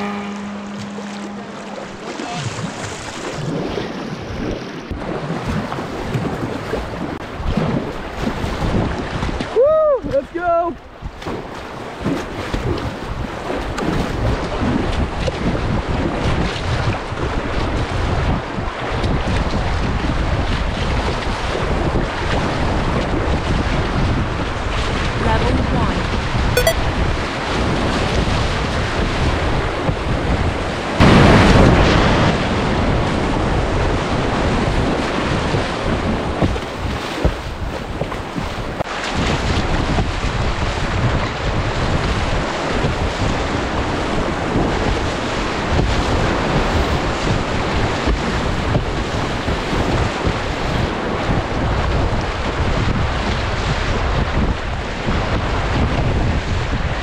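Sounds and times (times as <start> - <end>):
whitewater rushing and splashing: 0.0 - 10.7
wind buffeting microphone: 0.0 - 57.0.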